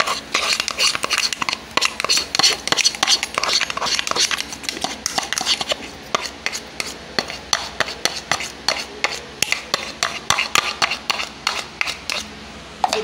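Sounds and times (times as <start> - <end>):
spoon scraping a bowl: 0.0 - 13.0.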